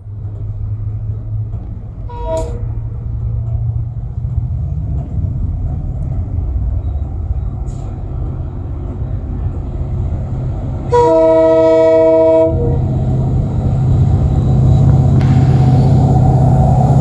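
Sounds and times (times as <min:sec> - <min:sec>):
diesel locomotive engine rumble: 0:00.0 - 0:17.0
locomotive air horn: 0:02.1 - 0:02.7, 0:10.9 - 0:12.9.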